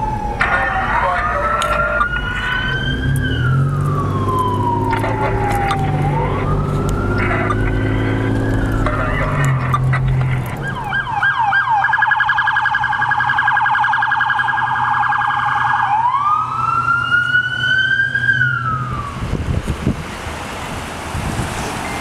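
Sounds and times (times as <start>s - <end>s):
low engine hum: 0.0s - 11.5s, 16.0s - 22.0s
emergency vehicle siren: 0.0s - 19.8s.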